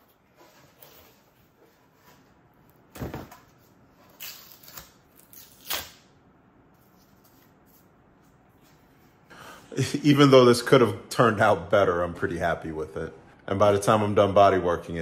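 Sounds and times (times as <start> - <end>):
cardboard tearing and crackling: 4.1 - 6.0.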